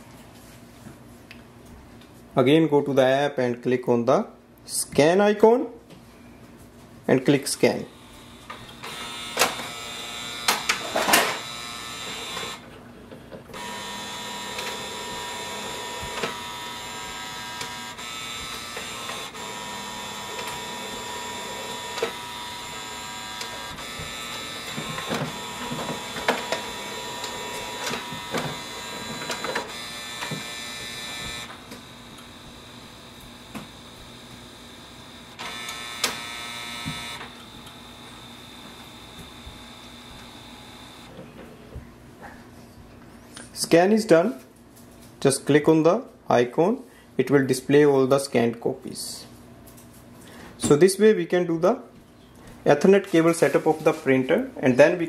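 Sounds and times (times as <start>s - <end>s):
printer motor whirring: 7.9s - 12.7s, 13.5s - 41.3s
paper feed clicks: 8.4s - 12.6s, 13.5s - 41.2s.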